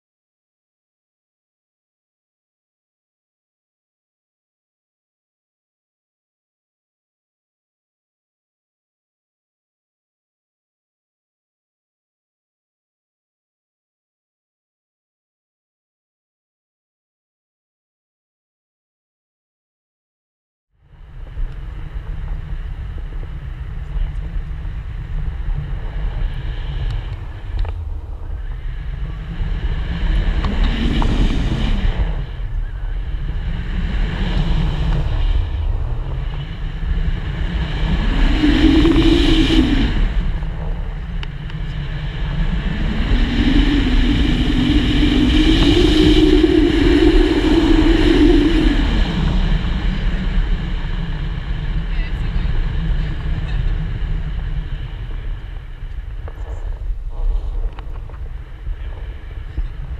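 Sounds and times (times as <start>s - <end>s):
whistling wind tone: 20.8s - 59.9s
wind buffeting microphone: 20.8s - 59.9s.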